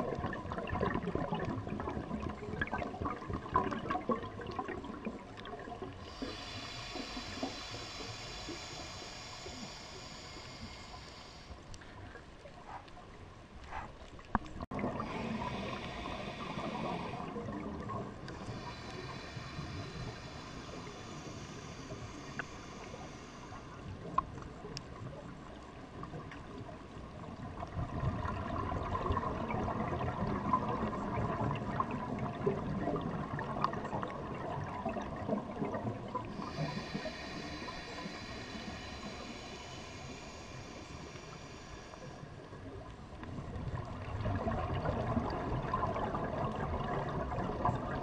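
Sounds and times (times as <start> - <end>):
regulator hiss on inhales: 5.9 - 12.8, 15.0 - 17.6, 18.2 - 24.2, 36.2 - 43.2.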